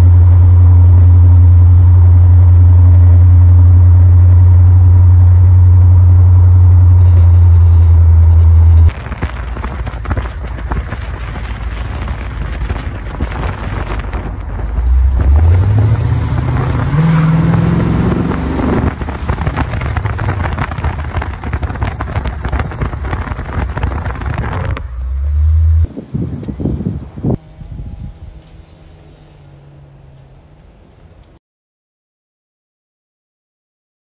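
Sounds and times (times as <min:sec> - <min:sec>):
car engine and exhaust while driving: 0:00.0 - 0:31.4
wind noise on microphone: 0:02.5 - 0:29.2.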